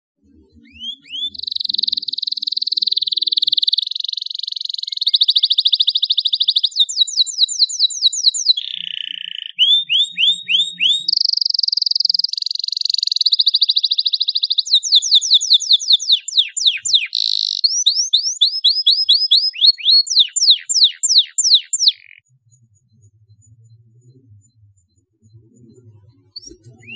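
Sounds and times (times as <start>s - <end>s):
canary singing: 0.6s - 22.2s, 26.4s - 26.9s.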